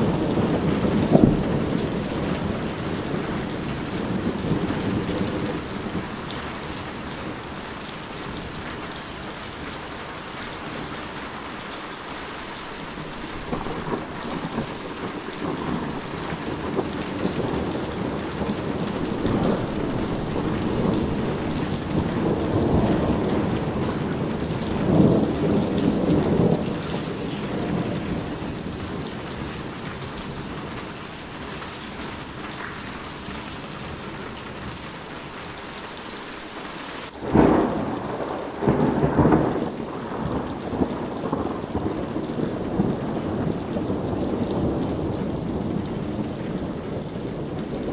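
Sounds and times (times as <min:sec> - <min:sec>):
sharp thunderclap: 0:00.0 - 0:06.1, 0:13.4 - 0:30.0, 0:37.1 - 0:47.9
rolling thunder: 0:00.0 - 0:09.7, 0:12.9 - 0:32.4, 0:37.1 - 0:47.9
heavy rain: 0:00.0 - 0:47.9.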